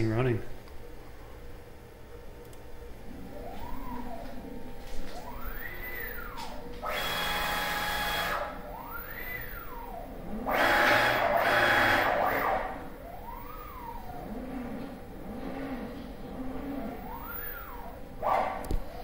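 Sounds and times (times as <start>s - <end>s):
motor whine gliding in pitch: 3.0s - 18.2s.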